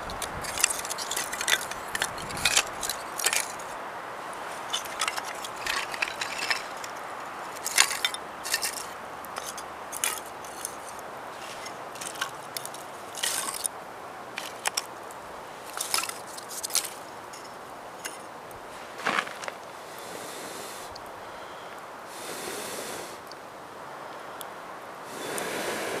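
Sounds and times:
wooden sticks clacking together: 0.0s - 18.3s
steady faint hiss: 0.0s - 26.0s.

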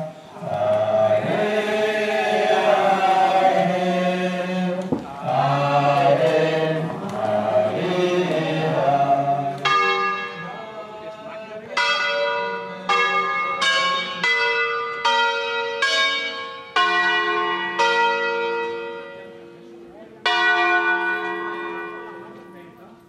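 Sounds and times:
group singing a hymn: 0.0s - 11.8s
church bells ringing: 0.0s - 23.0s.

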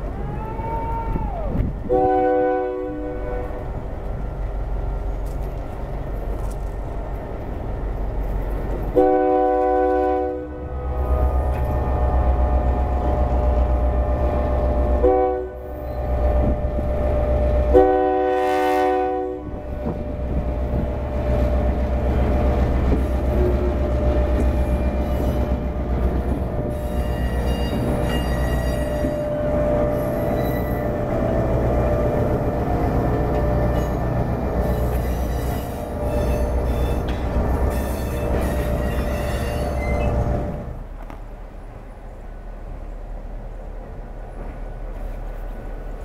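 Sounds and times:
diesel engine rumbling: 0.0s - 46.0s
locomotive air horn blasts: 1.8s - 3.7s, 8.9s - 14.2s, 14.8s - 16.6s, 17.6s - 20.1s, 34.6s - 37.1s
train wheels clicking over rail joints: 3.4s - 10.0s, 19.5s - 41.6s.

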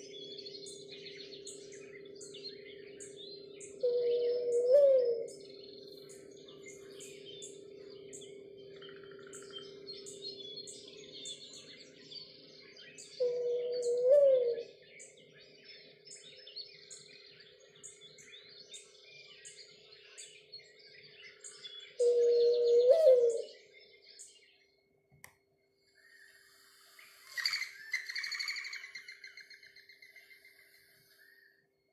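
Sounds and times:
mourning dove cooing: 0.0s - 14.9s, 21.4s - 23.6s
small songbirds chirping: 0.0s - 31.9s.

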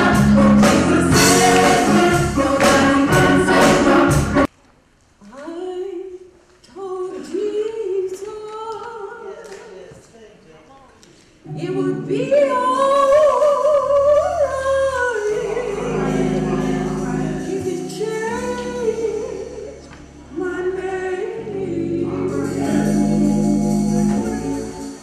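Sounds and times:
sustained keyboard chords: 0.0s - 4.5s, 14.5s - 25.0s
woman singing gospel: 11.5s - 23.4s.

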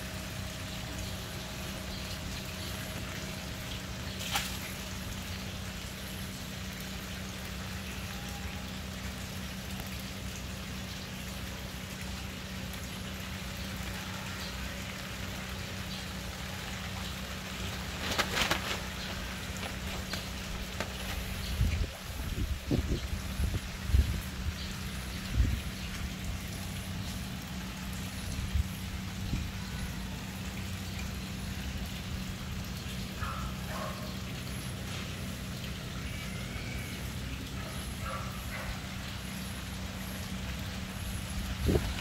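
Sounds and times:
low machine hum: 0.0s - 42.0s
rustling: 17.7s - 21.4s.

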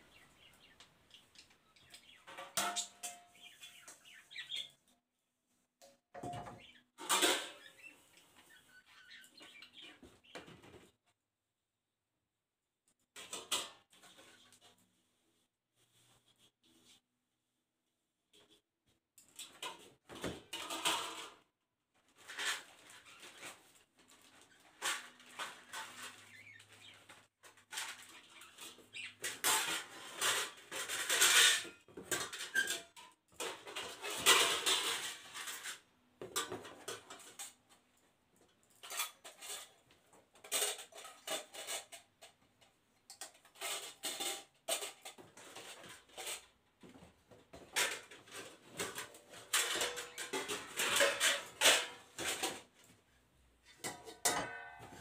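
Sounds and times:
steel plates and bowls clinking: 29.3s - 35.8s, 48.8s - 52.6s, 53.7s - 55.0s.

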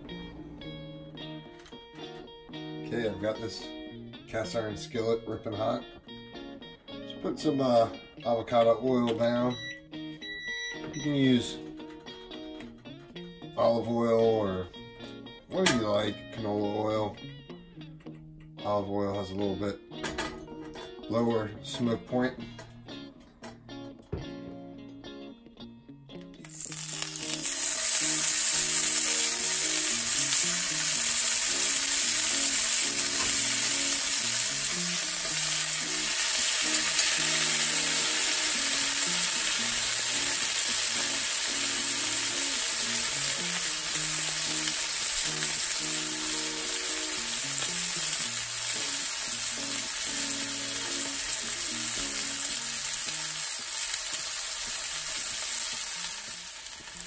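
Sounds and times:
steaks sizzling in a skillet: 26.4s - 57.0s.

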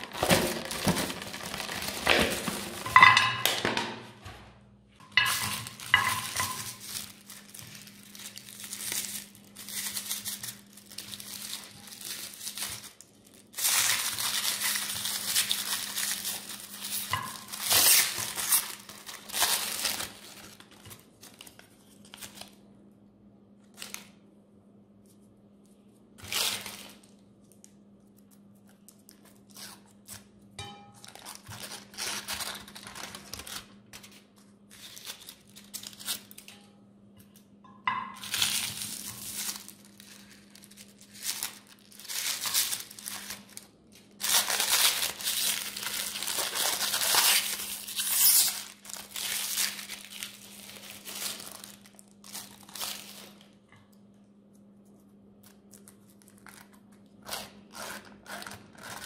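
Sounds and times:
foil wrappers crinkling: 0.0s - 3.7s, 5.1s - 22.7s, 23.6s - 24.2s, 26.2s - 30.4s, 31.0s - 36.6s, 37.9s - 53.6s, 55.4s - 59.0s
faint steady hum: 0.0s - 59.0s.

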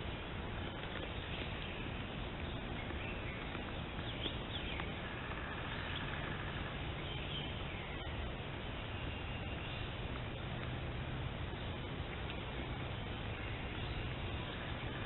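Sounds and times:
microphone hiss: 0.0s - 15.0s.

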